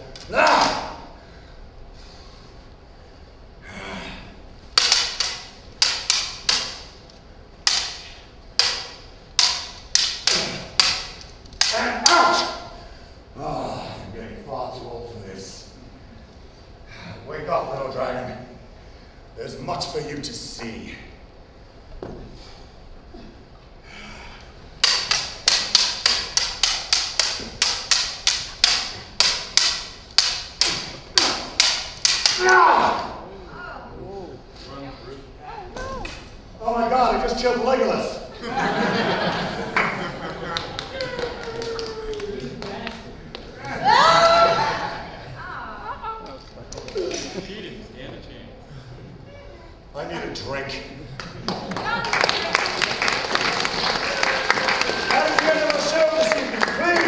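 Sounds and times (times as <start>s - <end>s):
lightsaber blades clacking: 4.6s - 12.7s, 24.8s - 33.2s
plastic tubes clashing: 4.7s - 12.6s, 24.8s - 33.2s.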